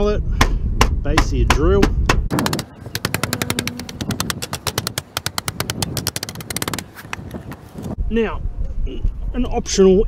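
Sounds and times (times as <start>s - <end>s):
drill base knocking on metal: 2.3s - 7.3s.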